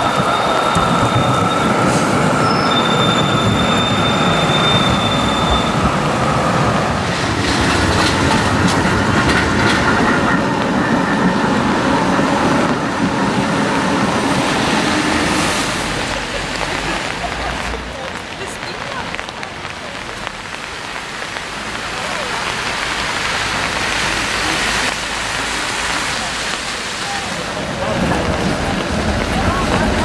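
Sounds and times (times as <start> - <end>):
tram wheels squealing: 0.0 - 16.0
tram rumbling past: 0.0 - 30.0.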